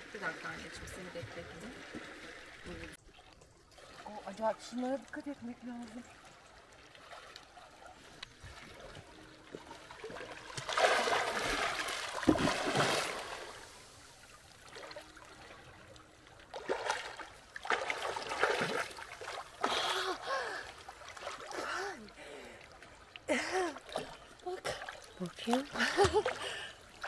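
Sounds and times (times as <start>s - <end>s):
water splashing and trickling: 0.0s - 27.0s.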